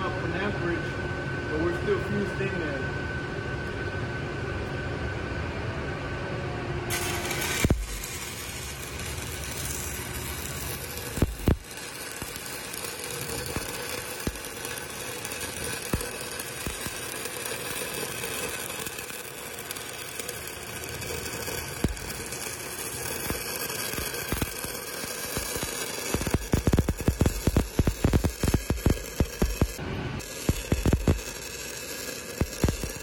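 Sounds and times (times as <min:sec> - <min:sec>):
welding arc hissing and popping: 0:06.9 - 0:33.0.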